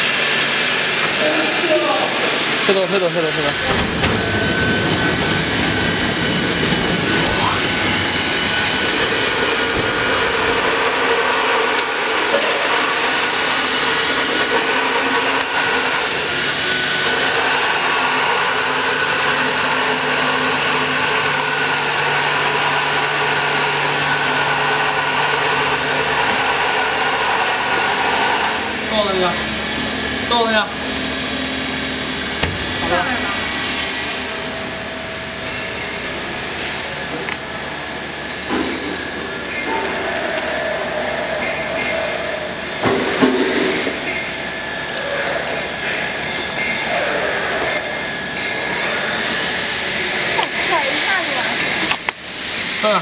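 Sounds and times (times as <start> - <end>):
vacuum pump hissing: 0.0 - 37.8, 50.4 - 53.0
low hum: 3.4 - 11.1.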